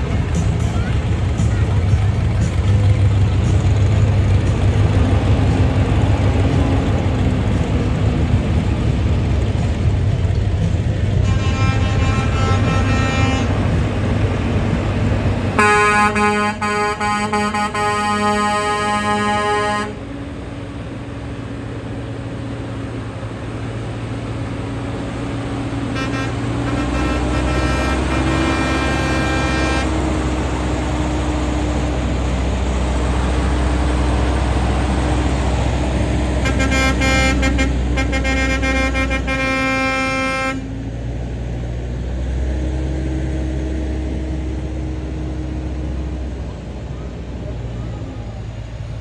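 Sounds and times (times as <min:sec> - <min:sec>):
diesel truck engine passing: 0:00.0 - 0:49.0
truck air horn blasts: 0:11.1 - 0:13.9, 0:15.5 - 0:20.1, 0:25.9 - 0:30.2, 0:36.4 - 0:40.8.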